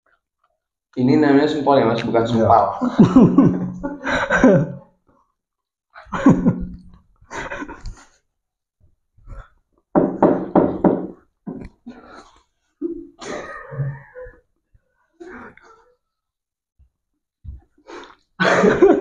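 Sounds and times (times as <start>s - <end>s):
young men laughing: 2.7s - 4.8s, 6.0s - 8.0s, 18.4s - 19.0s.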